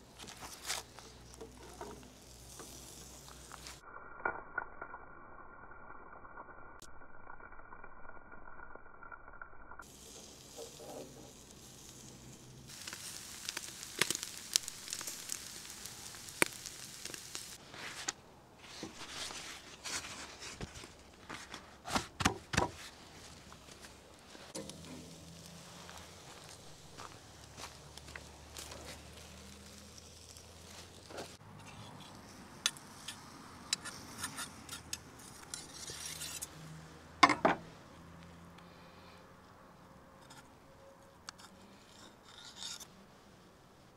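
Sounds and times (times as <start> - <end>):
meat sizzling over charcoal: 0.0 - 3.9, 9.8 - 18.1, 18.7 - 37.6
sharp crackles and pops: 0.0 - 39.1.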